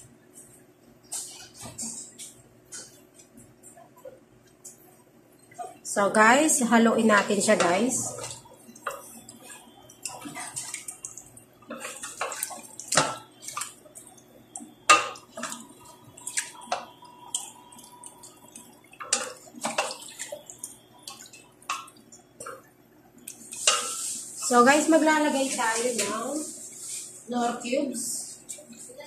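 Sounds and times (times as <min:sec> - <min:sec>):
wet squelching of stirred sauce: 0:07.1 - 0:27.3.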